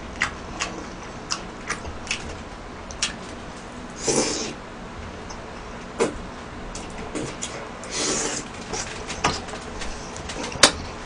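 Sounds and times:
chewing: 0.1s - 3.4s.

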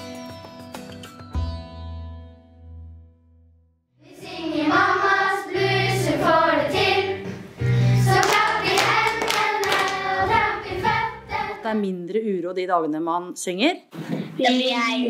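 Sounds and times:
children's choir singing: 4.0s - 11.6s
instrumental backing: 4.2s - 11.8s.

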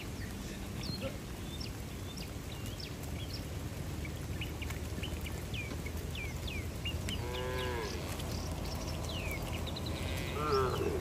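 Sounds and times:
cow mooing: 7.2s - 8.0s, 10.0s - 11.0s.

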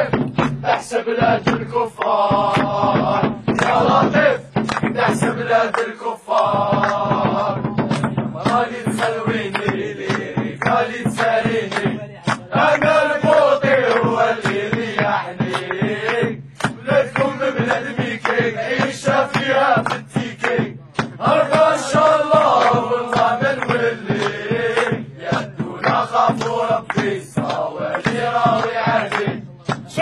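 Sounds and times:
fast percussive beat: 0.0s - 30.0s
men chanting in unison: 0.0s - 30.0s.

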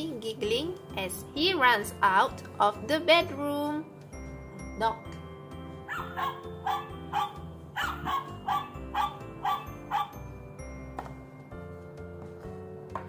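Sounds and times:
music-box style tune: 3.1s - 11.8s
recorded dog barking: 5.9s - 10.2s.

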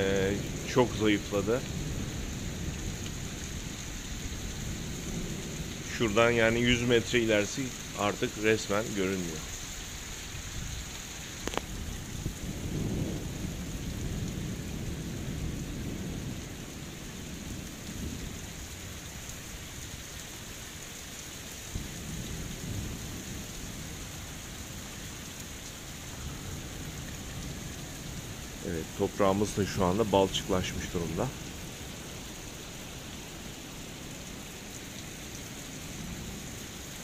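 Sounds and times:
low rumble of thunder: 0.0s - 9.5s, 10.4s - 19.9s, 21.7s - 32.3s
heavy rain pouring: 0.0s - 37.0s.

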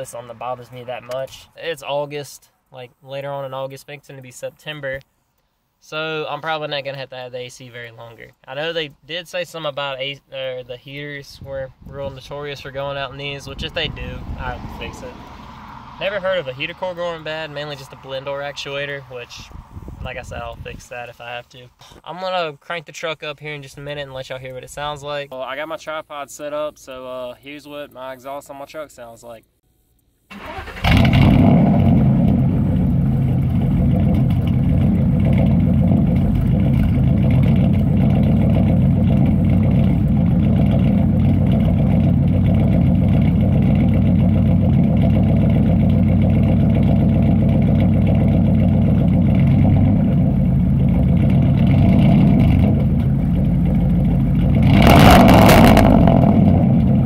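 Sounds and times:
pickup engine idling: 30.4s - 57.0s.

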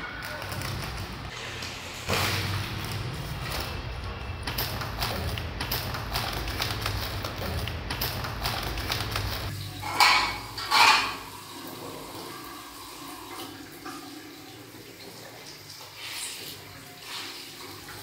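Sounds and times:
water running from faucet into sink: 9.5s - 18.0s.

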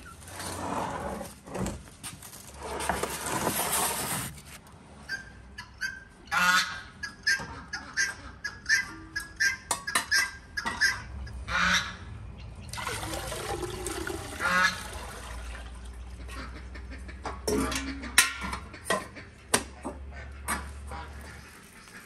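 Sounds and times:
water pouring from bucket: 12.7s - 16.0s.

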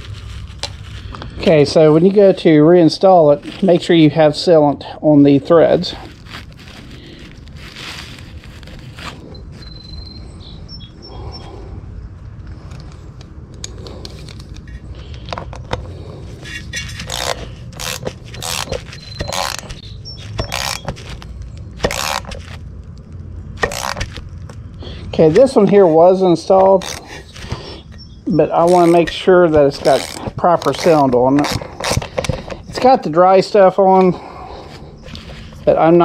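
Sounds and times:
hand tool scraping and clicking: 12.7s - 24.6s, 25.3s - 32.9s.

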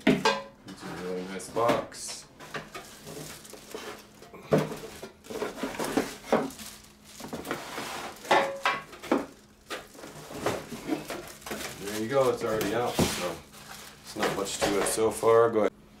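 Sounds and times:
parts knocking and clattering: 0.0s - 13.2s, 14.1s - 15.1s
plastic wrapping rustling: 1.0s - 15.5s
cardboard box scraping: 7.2s - 8.3s.

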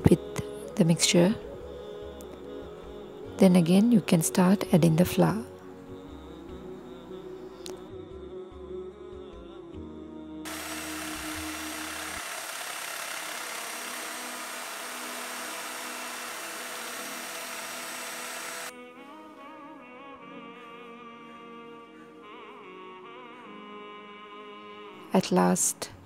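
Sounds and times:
background music: 0.0s - 12.4s, 13.2s - 26.0s
electric hand mixer whirring: 10.5s - 18.7s.

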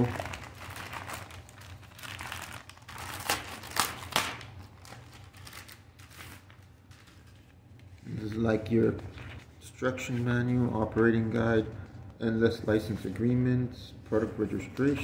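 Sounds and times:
packaging crinkling and rustling: 0.0s - 9.5s.

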